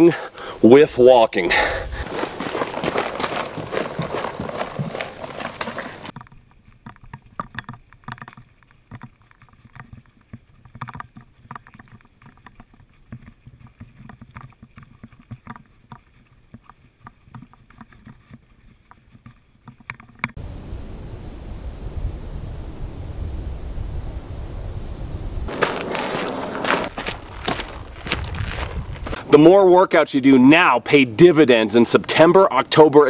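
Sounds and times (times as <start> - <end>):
low wind rush: 0.4 - 6.1, 20.4 - 29.4
running footsteps on rocky trail: 1.5 - 6.2, 25.5 - 29.3.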